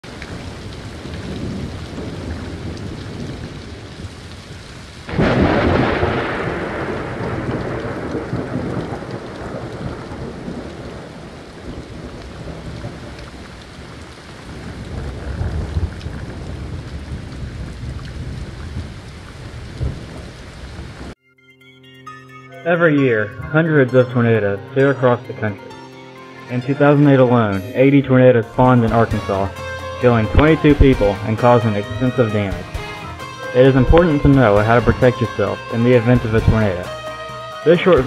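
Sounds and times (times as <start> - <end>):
steady rain: 0.0 - 21.2, 28.5 - 38.0
thunder rumbling: 0.0 - 21.2, 28.4 - 37.0.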